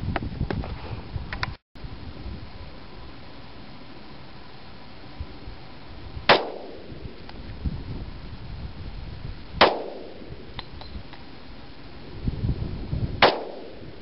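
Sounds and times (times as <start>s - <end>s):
pistol shots with echo: 6.3s - 6.9s, 9.6s - 10.2s, 13.2s - 13.8s.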